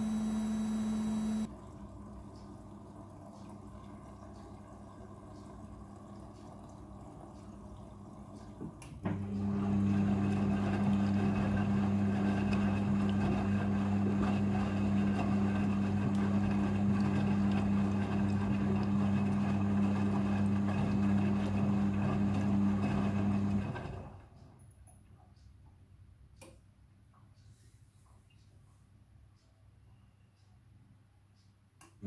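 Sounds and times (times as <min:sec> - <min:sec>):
washing machine hum: 0:00.0 - 0:24.5.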